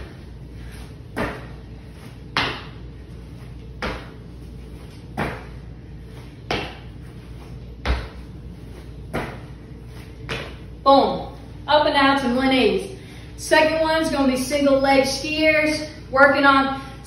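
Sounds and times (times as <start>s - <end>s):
sneakers thudding on concrete: 1.1s - 1.6s, 2.3s - 2.8s, 3.8s - 4.2s, 5.1s - 5.6s, 6.5s - 7.0s, 7.8s - 8.3s, 9.1s - 9.5s, 10.2s - 10.6s.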